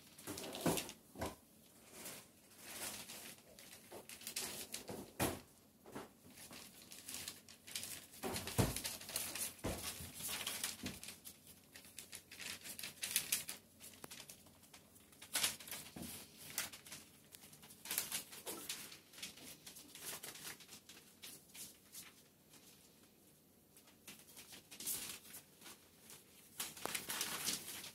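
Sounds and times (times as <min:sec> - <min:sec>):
newspaper rustling and crinkling: 0:00.0 - 0:01.0, 0:01.7 - 0:23.0, 0:23.7 - 0:27.9.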